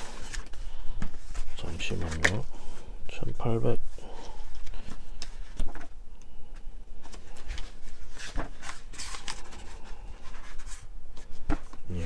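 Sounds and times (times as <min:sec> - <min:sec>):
book pages turning: 0:00.0 - 0:02.5, 0:04.2 - 0:06.0, 0:07.0 - 0:12.0.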